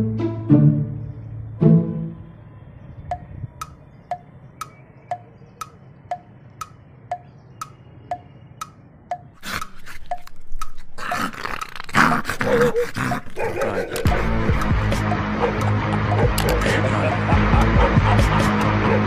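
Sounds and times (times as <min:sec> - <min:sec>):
wood-block ticks: 0:03.0 - 0:10.8, 0:13.2 - 0:16.8, 0:17.4 - 0:18.8.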